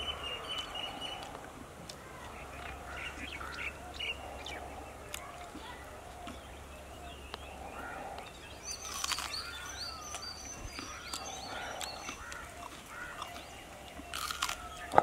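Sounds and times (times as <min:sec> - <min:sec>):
birds chirping and calling: 0:00.0 - 0:15.0
crunching bites: 0:08.8 - 0:15.0.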